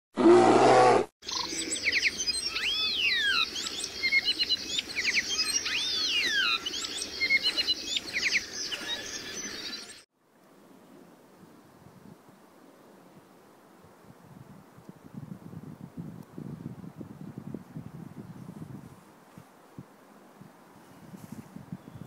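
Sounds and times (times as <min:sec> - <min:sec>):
birdsong with chirps and whistles: 0:01.2 - 0:10.0.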